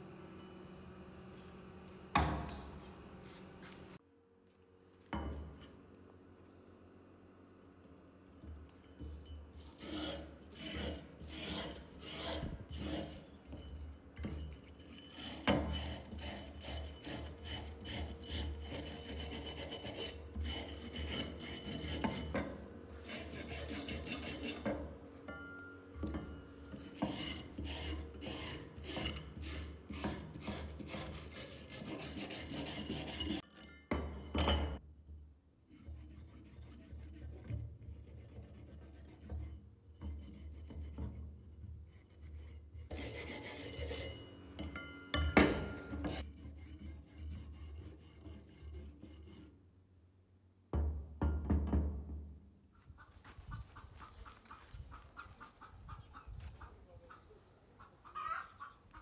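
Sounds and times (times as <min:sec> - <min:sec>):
wire brush scrubbing metal: 0:08.4 - 0:34.8, 0:42.1 - 0:49.5.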